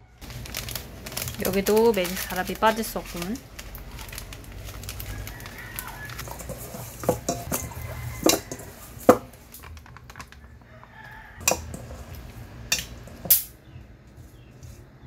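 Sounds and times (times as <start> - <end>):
metal bowl knocking and clinking: 6.2 - 10.5, 11.4 - 13.5.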